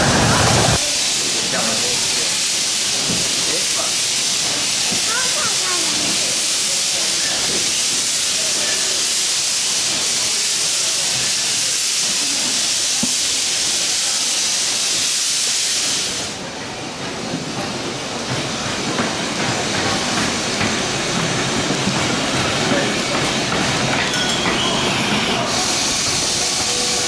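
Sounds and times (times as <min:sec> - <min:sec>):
steam hissing from locomotive: 0:00.0 - 0:27.0
train wheels rumbling and clicking: 0:15.7 - 0:27.0.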